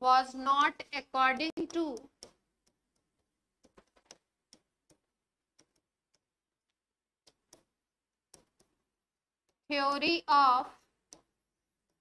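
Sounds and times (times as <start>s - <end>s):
pen tapping on writing board: 1.6s - 6.3s, 7.2s - 8.8s, 11.0s - 12.0s.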